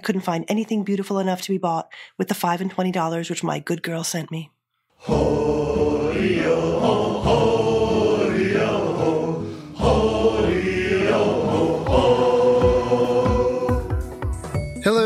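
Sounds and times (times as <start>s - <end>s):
theme music with held notes: 5.1s - 15.0s.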